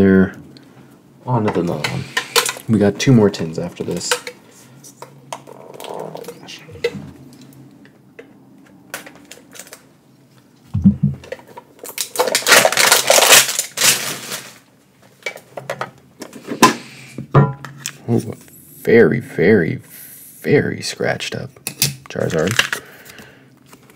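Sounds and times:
packaging rustling: 9.2 - 9.9, 11.8 - 14.7
dull thump: 10.7 - 11.2.

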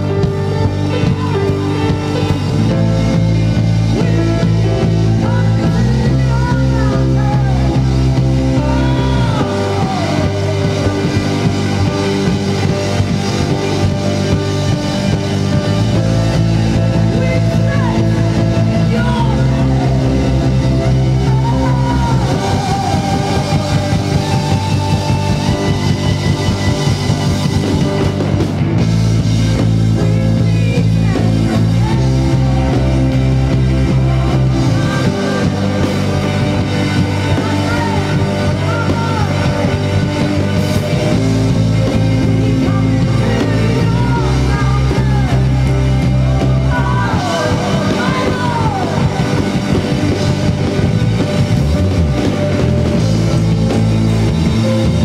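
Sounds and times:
drum kit beat: 0.0 - 55.0
electric guitar: 0.0 - 55.0
low bass notes: 0.0 - 55.0
rock band playing: 0.0 - 55.0.

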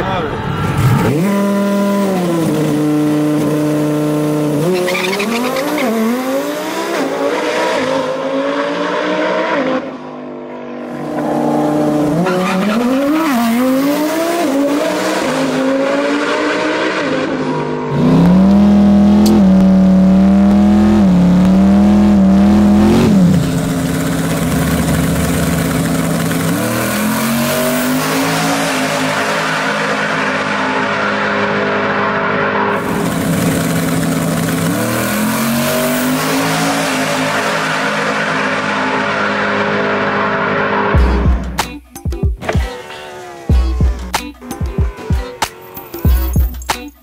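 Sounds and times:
sports car accelerating: 0.0 - 41.5
car engine revving in burnout: 0.3 - 10.0, 10.8 - 41.0.

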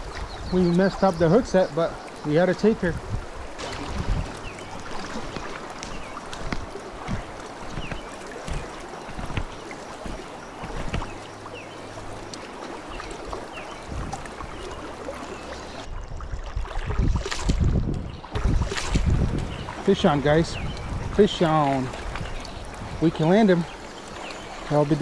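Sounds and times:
creek water rippling: 0.0 - 25.0
small ticks and knocks: 4.7 - 11.2.

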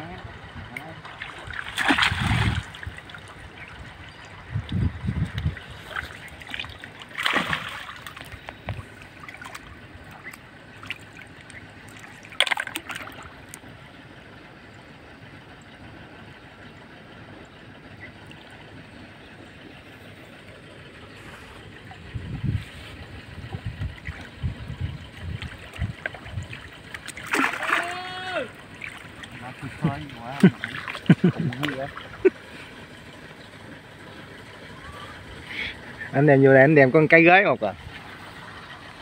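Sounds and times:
water splashing and sloshing: 0.4 - 14.7, 16.6 - 36.1
loud splashes: 1.1 - 3.4, 5.8 - 8.4, 12.0 - 13.3, 26.6 - 32.2
water trickling: 1.1 - 13.6, 23.4 - 32.4.

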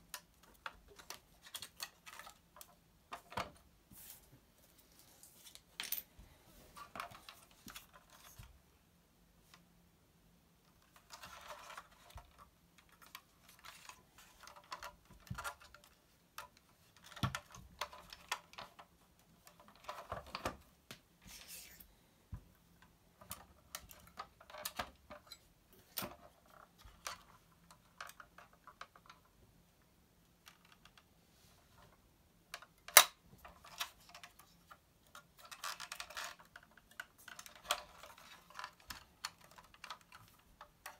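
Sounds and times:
rustling: 0.5 - 8.6.

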